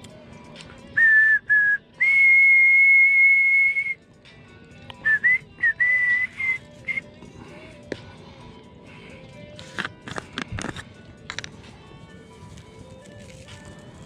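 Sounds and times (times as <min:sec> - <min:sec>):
faint background music: 0:00.0 - 0:14.0
person whistling a tune: 0:00.8 - 0:04.1, 0:04.9 - 0:07.2.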